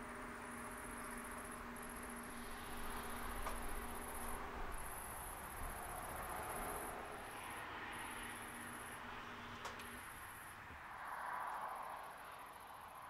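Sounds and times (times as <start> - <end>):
faint low hum: 0.0 - 10.6
crickets trilling: 0.0 - 13.0.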